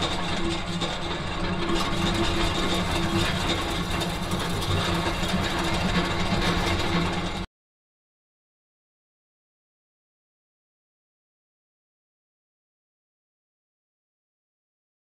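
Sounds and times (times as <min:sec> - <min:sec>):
machinery running with low hum: 0:00.0 - 0:07.5.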